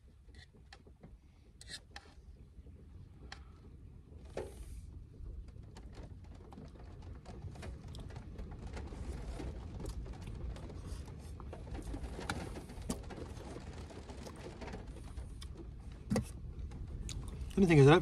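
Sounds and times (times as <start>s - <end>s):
steady low rumble: 2.3s - 18.0s.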